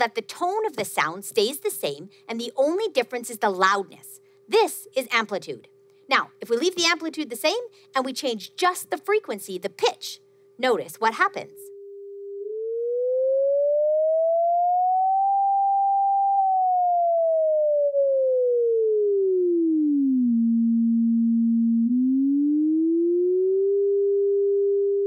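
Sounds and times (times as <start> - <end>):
sine tone sweeping in pitch: 11.7 - 25.0.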